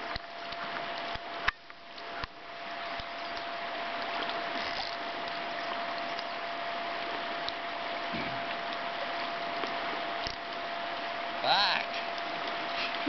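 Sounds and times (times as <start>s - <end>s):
thin steady hum: 0.0s - 13.0s.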